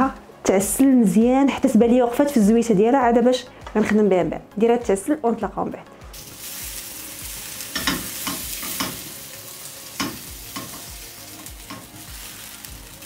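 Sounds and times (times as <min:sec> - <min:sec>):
tomatoes sizzling in oil: 0:06.1 - 0:13.0.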